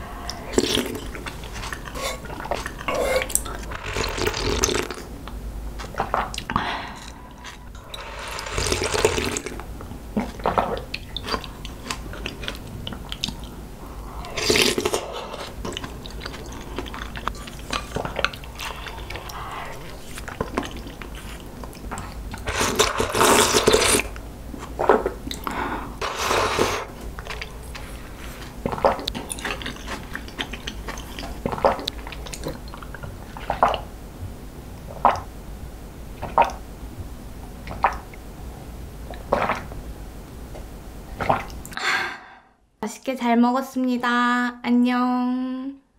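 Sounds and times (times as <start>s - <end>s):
sipping and slurping soup: 0.0s - 5.1s, 5.8s - 9.6s, 10.2s - 33.8s
swallowing water: 0.0s - 5.1s, 5.8s - 33.9s, 36.2s - 36.6s, 37.6s - 38.2s, 39.1s - 39.8s, 41.2s - 41.8s
soft chewing: 0.2s - 3.8s, 9.5s - 25.7s, 26.9s - 33.8s.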